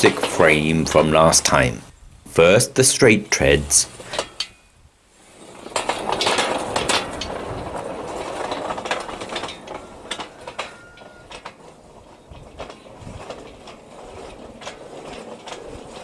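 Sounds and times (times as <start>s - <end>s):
steel wheels rumbling on track: 0.0s - 16.0s.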